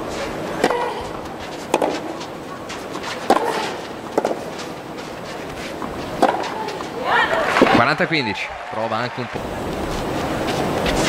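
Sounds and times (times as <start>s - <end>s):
outdoor ambience: 0.0s - 11.0s
tennis ball struck by rackets: 0.6s - 2.2s, 2.9s - 4.5s, 5.8s - 7.8s.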